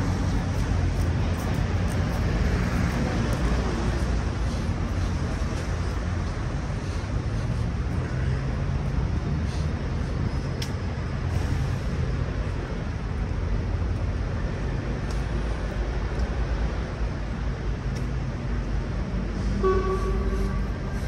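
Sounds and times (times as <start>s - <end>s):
street traffic rumble: 0.0s - 21.0s
vehicle horn toot: 19.6s - 20.8s.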